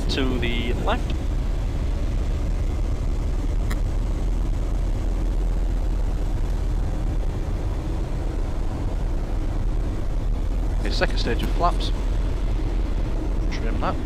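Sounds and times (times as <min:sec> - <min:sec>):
light aircraft engine drone: 0:00.0 - 0:14.0.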